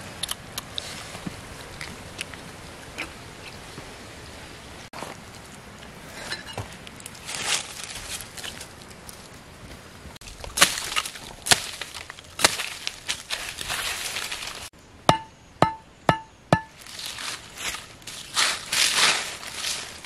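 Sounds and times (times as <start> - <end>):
machete chopping sapling: 10.5 - 14.4, 15.1 - 17.0.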